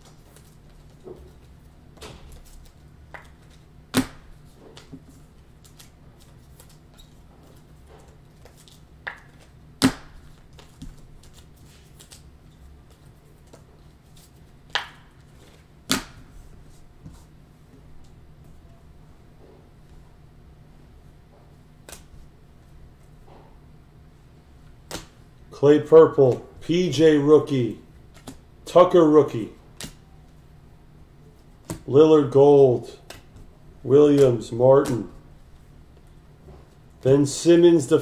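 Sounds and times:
faint low hum: 0.0 - 38.0
cards shuffling and ticking: 2.3 - 16.0, 34.1 - 35.2.

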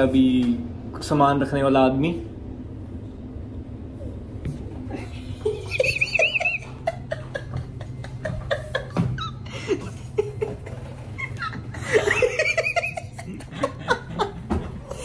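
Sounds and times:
high wavering giggle: 4.9 - 15.0
men laughing: 4.9 - 15.0.

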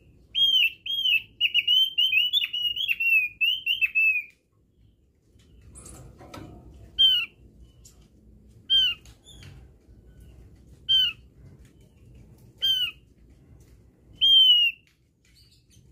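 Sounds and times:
bird calling falling notes: 14.2 - 14.9.

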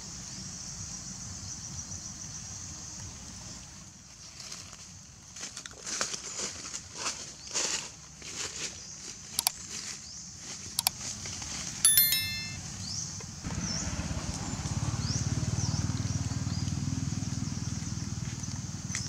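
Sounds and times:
ringing bell chime: 11.8 - 12.6
faint high chirps: 11.9 - 12.6.

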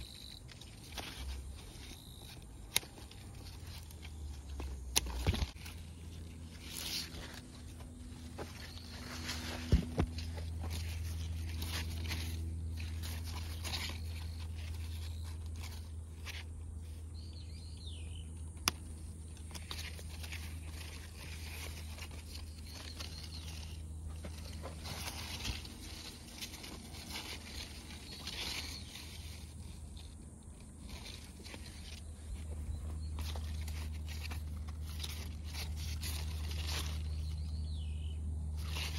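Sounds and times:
leaves rustling: 0.0 - 38.9
steady low hum: 0.0 - 38.9.

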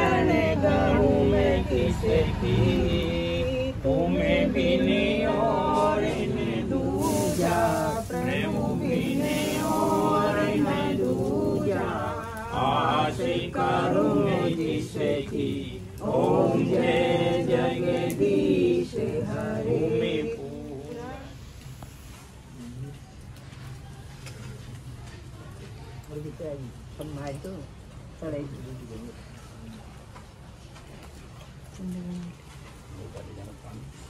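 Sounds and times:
group chanting a prayer: 0.0 - 22.2.

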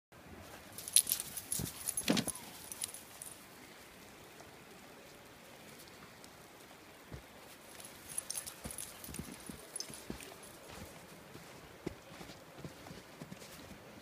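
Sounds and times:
dogs scuffling in snow: 0.4 - 3.5, 7.4 - 13.8
metallic harness jingling: 0.7 - 3.4, 7.8 - 10.6.

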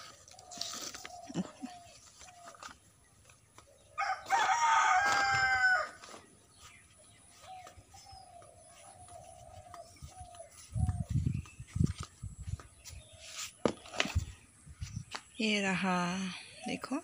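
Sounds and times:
rooster crowing: 4.0 - 6.0.

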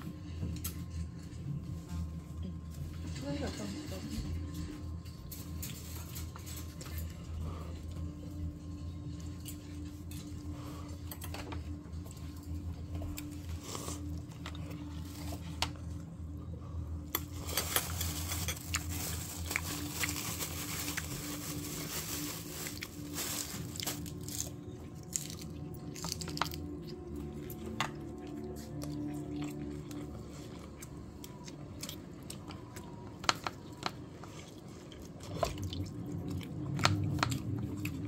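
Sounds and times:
steady low hum: 0.0 - 38.0
people biting and chewing: 22.7 - 38.0.

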